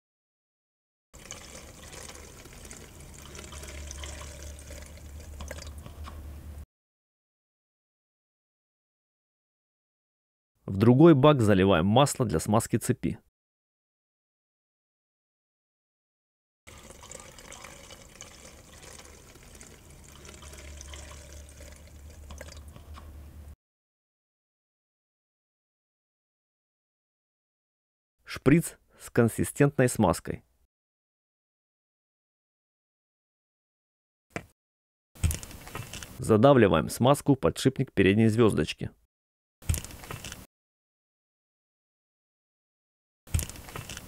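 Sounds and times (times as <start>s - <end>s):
fuel trickling into tank: 1.2s - 6.0s, 16.7s - 22.8s.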